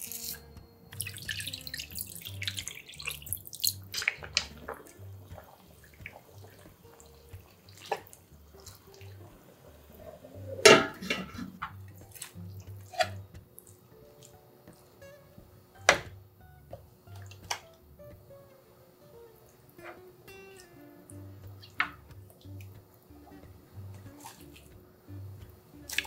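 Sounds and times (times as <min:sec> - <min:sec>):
soft background music: 0:00.0 - 0:26.0
water pouring into frying pan: 0:01.0 - 0:13.8.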